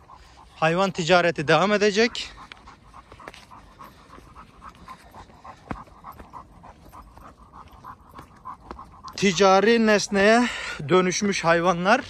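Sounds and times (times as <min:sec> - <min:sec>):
dog panting: 0:00.0 - 0:12.0.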